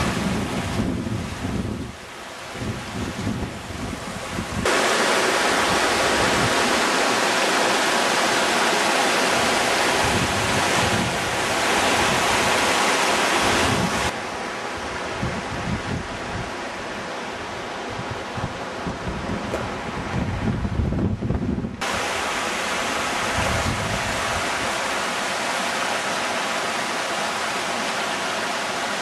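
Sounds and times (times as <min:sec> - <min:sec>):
wind buffeting microphone: 0:00.0 - 0:04.7, 0:05.4 - 0:06.9, 0:09.2 - 0:14.2, 0:14.8 - 0:24.8
stream rushing over rocks: 0:00.0 - 0:20.0, 0:21.8 - 0:29.0.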